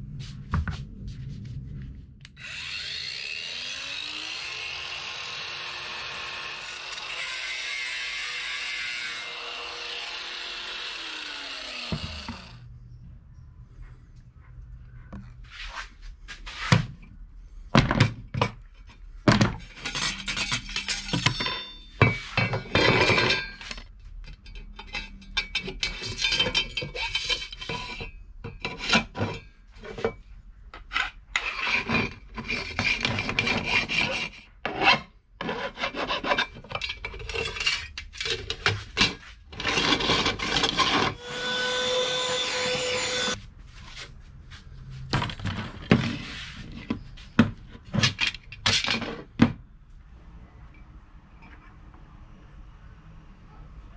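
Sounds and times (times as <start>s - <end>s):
handheld vacuum motor hum: 9.6s - 12.6s
metal knocks and clinks: 19.3s - 28.6s
hand tools scraping metal: 19.6s - 30.2s, 30.8s - 43.4s.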